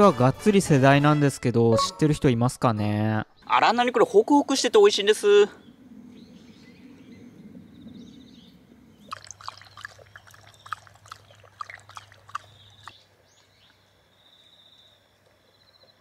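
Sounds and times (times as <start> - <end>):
dog lapping water: 9.0 - 13.0.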